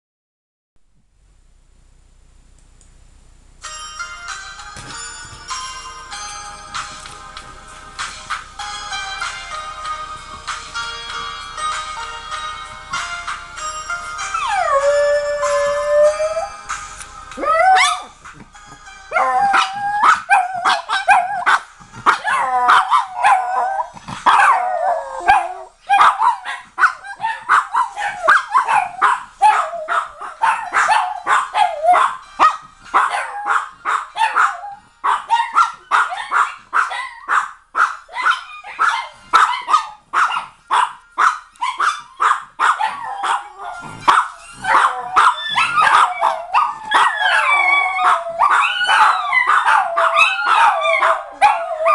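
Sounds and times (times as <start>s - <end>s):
dogs howling: 14.4s - 16.6s, 17.3s - 18.2s, 19.1s - 32.2s, 33.0s - 37.5s, 38.1s - 51.9s
small dogs yapping: 19.5s - 51.9s.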